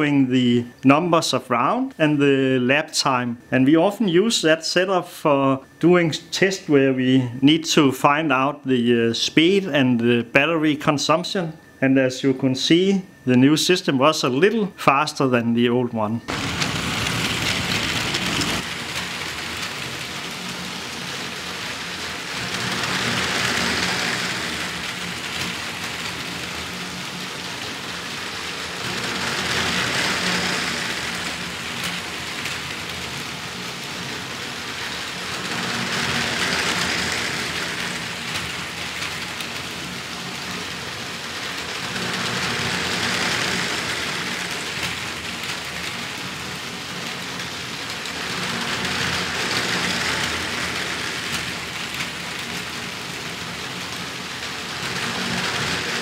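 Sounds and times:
toy train wheels rolling on track: 16.3s - 56.0s.

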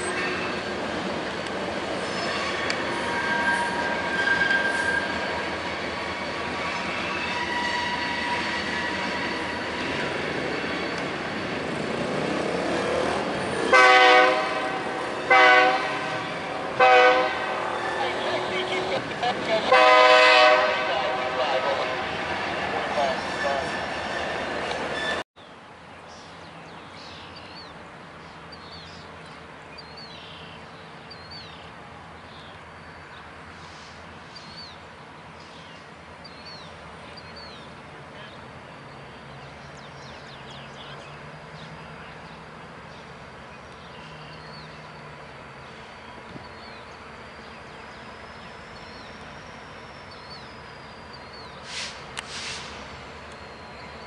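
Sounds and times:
brief rush of noise: 51.6s - 52.9s.

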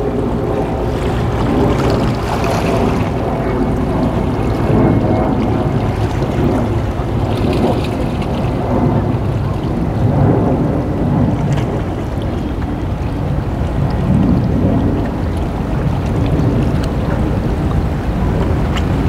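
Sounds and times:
churning water: 0.0s - 19.0s
wind on microphone: 0.0s - 19.0s.

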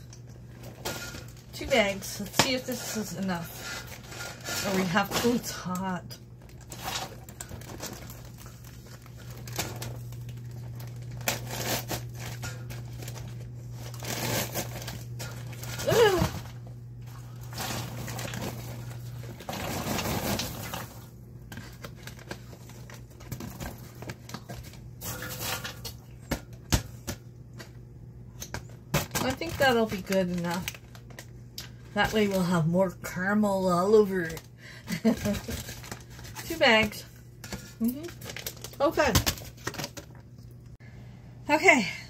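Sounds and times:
popcorn rustling into pan: 0.0s - 27.8s, 28.4s - 40.4s
paper bags crinkling: 0.4s - 25.9s, 29.0s - 32.5s, 33.9s - 40.3s.

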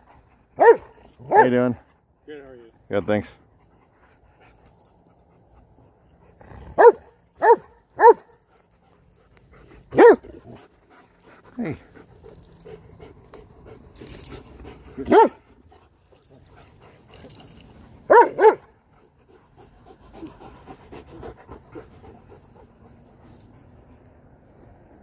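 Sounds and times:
dog barking: 0.6s - 1.5s, 6.8s - 8.3s, 9.9s - 10.2s, 15.1s - 15.4s, 18.1s - 18.7s
dog panting: 8.0s - 24.0s.

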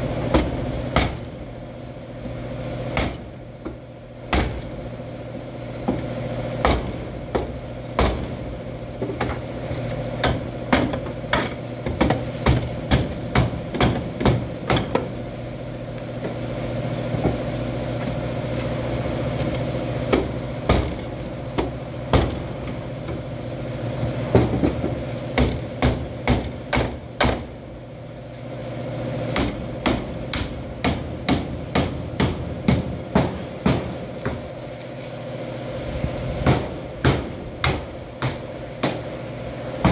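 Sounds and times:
steady hum: 0.0s - 39.9s
hammer blows on car panel: 0.3s - 1.3s, 2.9s - 4.7s, 6.6s - 8.4s, 10.2s - 15.1s, 20.1s - 21.0s, 21.6s - 22.4s, 24.3s - 27.5s, 29.3s - 34.4s, 36.4s - 39.1s.

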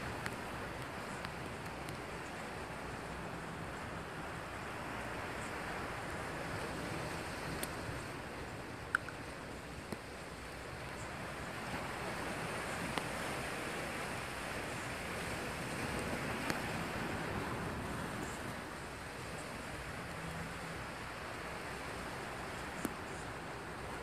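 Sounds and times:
faint clicks: 0.1s - 2.4s, 7.5s - 8.1s, 8.9s - 10.1s, 22.5s - 23.3s
surf breaking on rocky shore: 10.0s - 24.0s.

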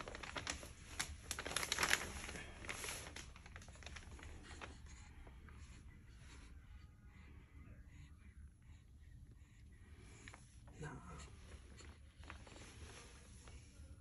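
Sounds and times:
fabric rustling and crinkling: 0.0s - 5.4s, 11.3s - 14.0s.

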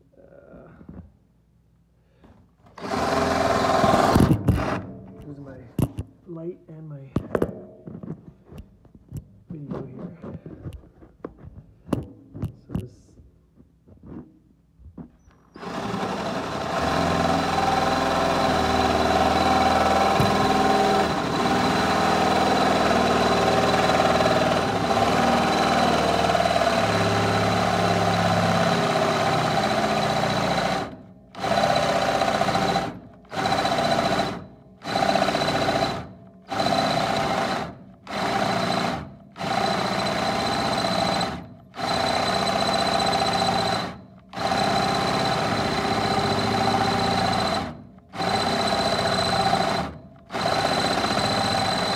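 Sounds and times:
cordless drill boring: 2.7s - 4.8s, 15.5s - 51.9s.

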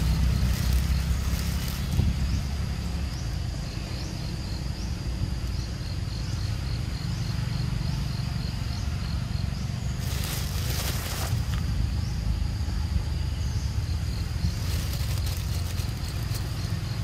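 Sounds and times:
insects calling high-pitched: 0.0s - 17.0s.

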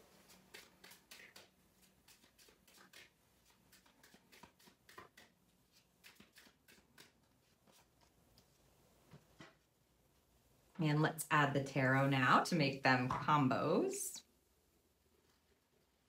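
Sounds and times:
cards being shuffled: 0.3s - 8.5s.

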